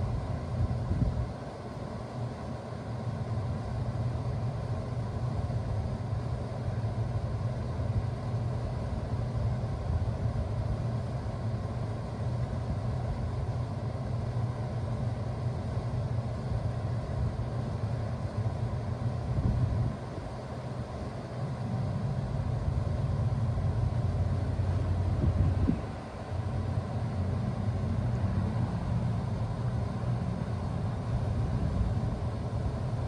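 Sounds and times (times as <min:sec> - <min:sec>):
compressor humming: 0:00.0 - 0:33.0
air rushing through grille: 0:19.0 - 0:33.0.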